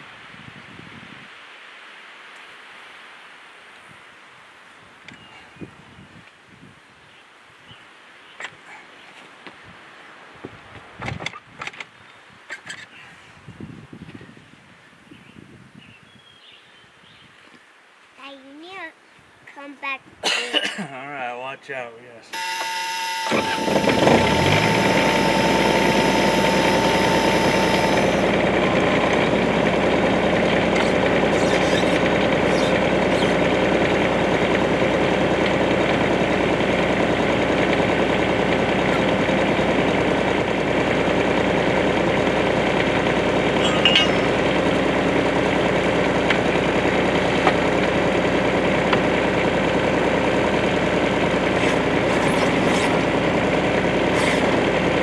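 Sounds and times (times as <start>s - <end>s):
high steady whine: 22.4s - 48.9s
excavator diesel engine running: 22.4s - 55.0s.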